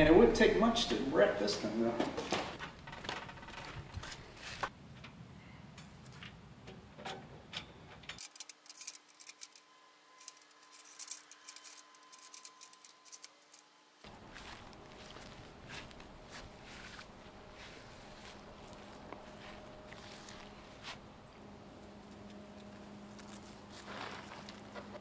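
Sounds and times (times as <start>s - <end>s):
aluminium parts clinking: 7.0s - 13.7s.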